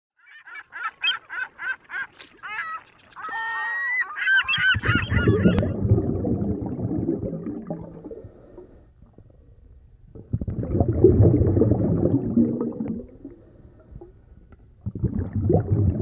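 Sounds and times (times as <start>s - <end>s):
bird calls: 0.2s - 5.6s
muffled underwater rumble: 4.6s - 16.0s.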